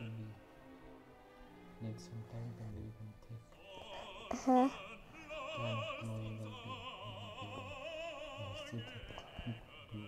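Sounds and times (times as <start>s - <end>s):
operatic high singing voice: 3.6s - 10.0s.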